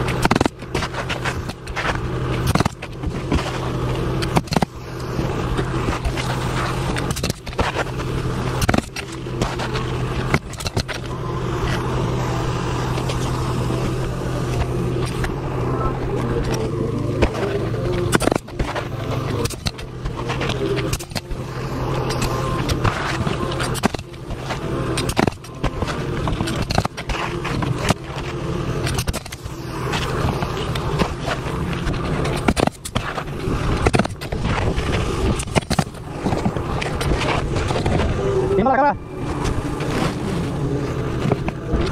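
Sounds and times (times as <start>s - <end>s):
shingles and gloves scraping: 0.0s - 38.4s, 39.2s - 41.9s
low machine hum: 0.0s - 41.9s
nailer firing nails: 2.4s - 3.4s, 19.4s - 19.8s, 23.6s - 27.1s, 35.3s - 36.5s.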